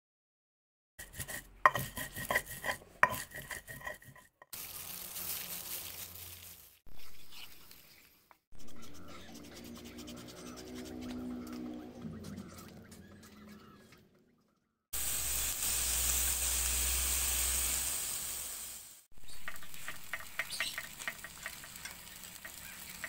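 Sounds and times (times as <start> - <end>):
squishing of meat in marinade: 1.0 - 11.8
plastic glove rustling: 4.5 - 8.3.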